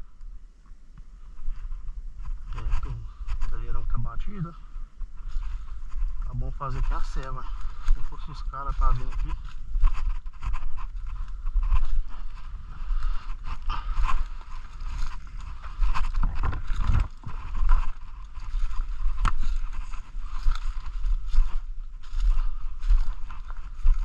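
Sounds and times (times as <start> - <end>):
footsteps crunching on dry leaves: 1.4 - 24.0
camera handling rumble: 8.8 - 21.5.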